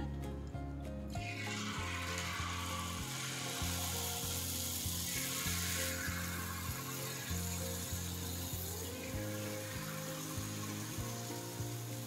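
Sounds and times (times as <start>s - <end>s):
background music with bass line: 0.0s - 12.0s
batter sizzling in hot fat: 1.2s - 12.0s.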